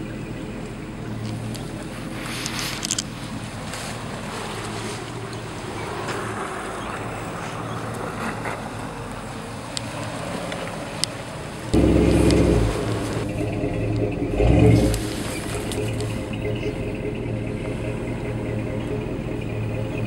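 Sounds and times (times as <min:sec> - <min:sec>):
engine droning under load: 0:00.0 - 0:20.0
loud low rumble: 0:11.7 - 0:20.0.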